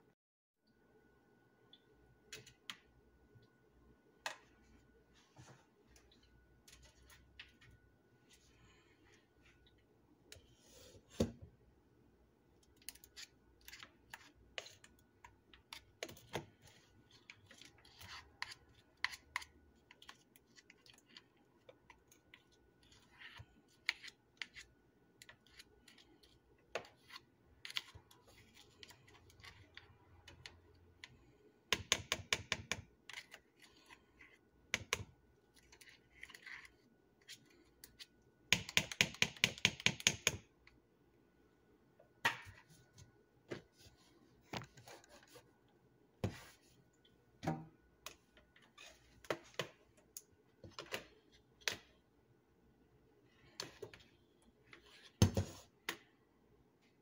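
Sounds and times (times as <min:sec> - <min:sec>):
spatula scraping plastic cup: 0:12.8 - 0:21.4.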